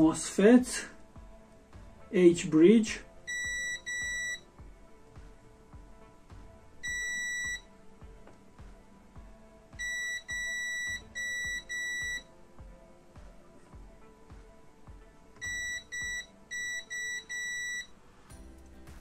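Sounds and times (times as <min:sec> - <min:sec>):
multimeter beeping: 0:03.3 - 0:04.4, 0:06.8 - 0:07.6, 0:09.8 - 0:12.3, 0:15.4 - 0:17.9.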